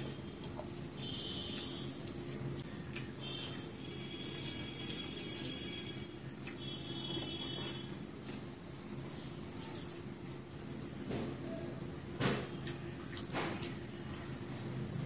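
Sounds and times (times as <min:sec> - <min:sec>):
wet eating by hand: 0:00.0 - 0:11.0, 0:12.2 - 0:15.0
chewing: 0:06.4 - 0:10.7, 0:12.6 - 0:15.0.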